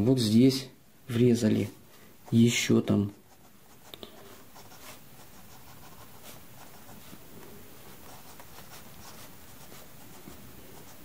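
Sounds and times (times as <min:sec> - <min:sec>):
pencil scratching on paper: 0:02.2 - 0:07.2, 0:07.8 - 0:11.0.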